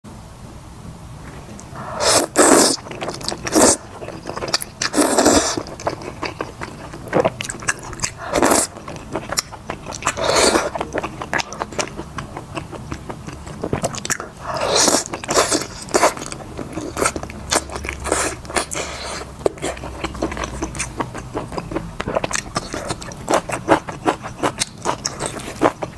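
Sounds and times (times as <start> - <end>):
wet chewing: 1.5 - 25.9
loud slurps of noodles: 1.8 - 3.9, 4.8 - 5.7, 8.1 - 8.7, 10.1 - 10.7, 14.5 - 16.2.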